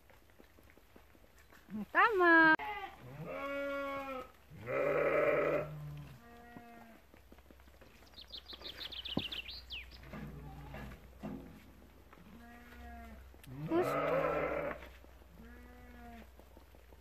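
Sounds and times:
sheep bleating: 2.6s - 7.0s, 12.2s - 16.3s.

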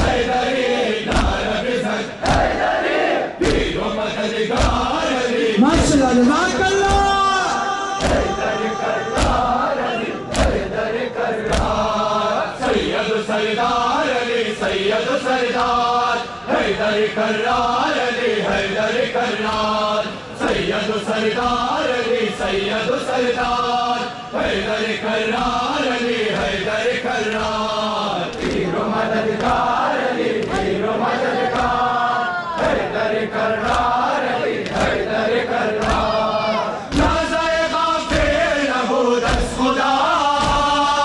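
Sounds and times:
men chanting a lament: 0.0s - 41.0s
hands beating chests: 4.5s - 10.8s, 11.4s - 12.0s.

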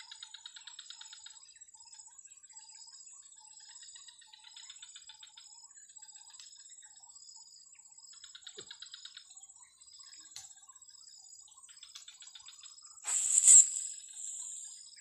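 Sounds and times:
pulsed insect trills: 0.0s - 15.0s
high-pitched insect whine: 9.6s - 15.0s
short chirping calls: 11.8s - 15.0s.

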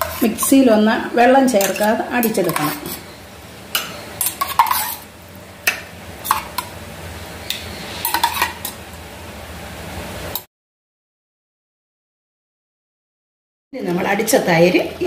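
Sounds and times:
spoon scooping thick curd: 1.6s - 3.0s, 3.8s - 5.1s.

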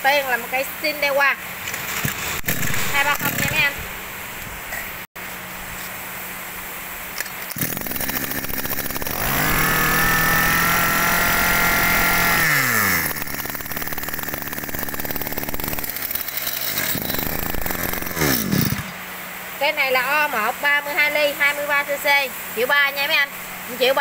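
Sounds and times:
brush cutter engine revving: 2.1s - 3.9s, 7.4s - 19.1s.

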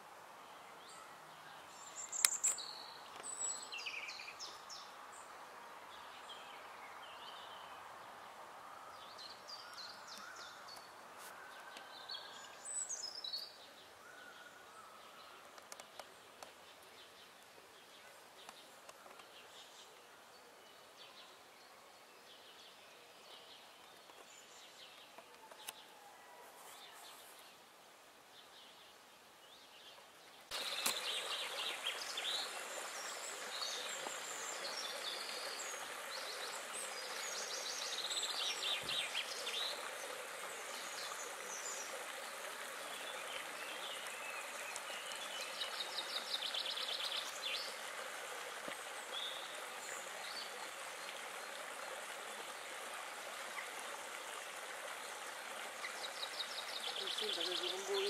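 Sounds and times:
birds singing: 0.7s - 4.9s, 55.7s - 58.0s
rippling water rushing: 30.5s - 58.0s.

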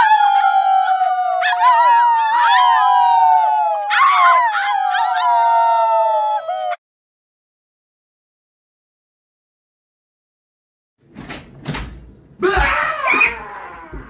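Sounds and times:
people howling like wolves: 0.0s - 6.8s, 12.4s - 14.0s.

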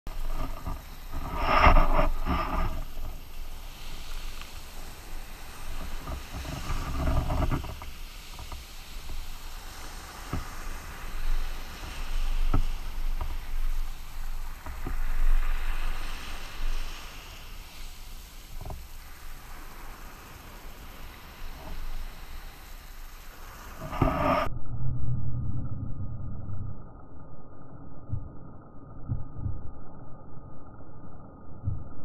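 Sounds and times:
wind rumble on microphone: 0.0s - 32.0s
surf splashing around kayak: 0.1s - 24.5s.

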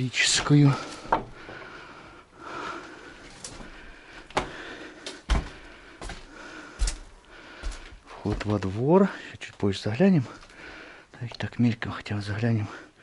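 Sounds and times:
footsteps with dull thuds and clicks: 0.0s - 1.8s, 3.0s - 11.4s.

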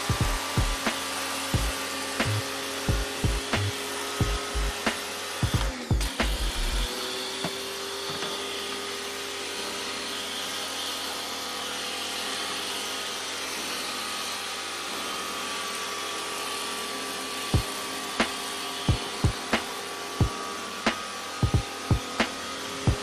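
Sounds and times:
motor hum: 0.0s - 9.4s, 17.5s - 23.0s.

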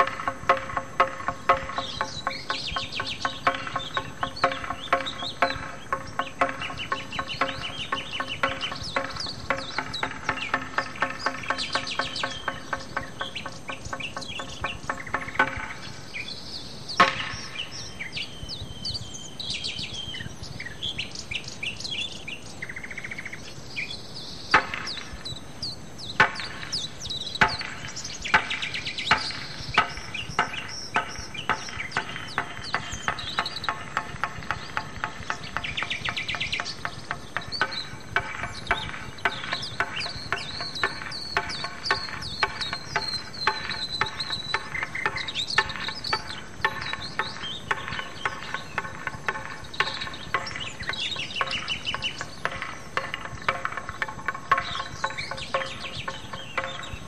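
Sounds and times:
birds chirping and singing: 0.0s - 57.0s
insect-like trills: 0.0s - 57.0s
low pulsed call: 26.4s - 57.0s.

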